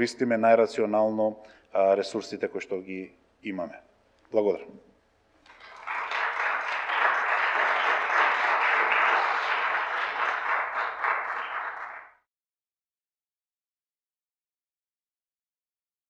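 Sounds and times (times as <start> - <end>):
audience applauding: 5.5 - 12.2.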